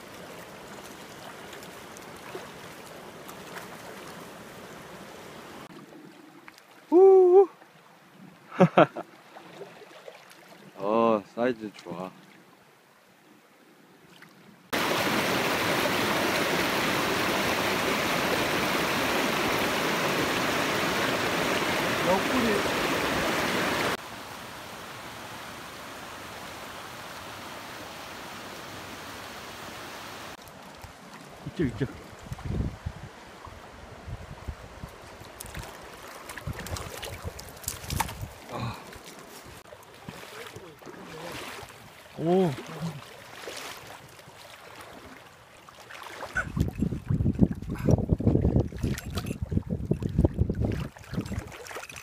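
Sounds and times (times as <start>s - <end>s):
stream rushing over rocks: 0.0s - 5.7s, 14.7s - 34.0s
stream water running: 0.0s - 52.0s
wind buffeting microphone: 31.5s - 35.6s, 36.4s - 38.7s, 46.4s - 51.5s.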